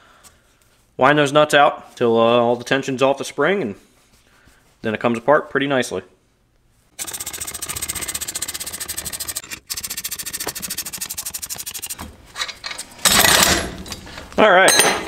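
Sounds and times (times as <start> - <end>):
ratchet wrench clicking: 7.0 - 12.0.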